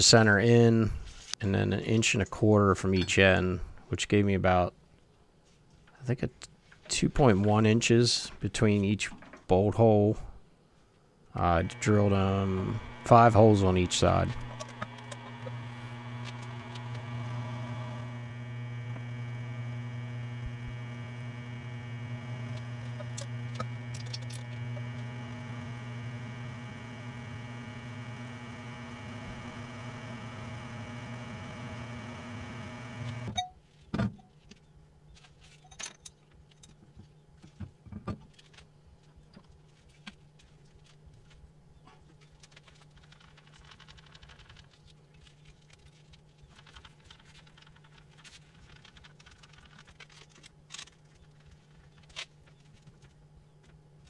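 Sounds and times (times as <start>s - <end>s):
milling machine motor hum: 11.4s - 33.4s.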